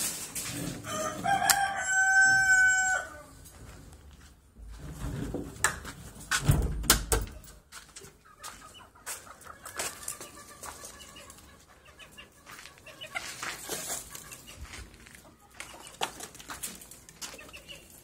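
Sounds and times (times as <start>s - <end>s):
chickens clucking: 7.3s - 18.0s.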